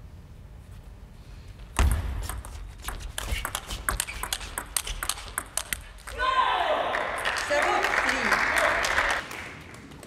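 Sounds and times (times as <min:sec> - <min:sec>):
table tennis ball clicks: 0:02.3 - 0:05.8.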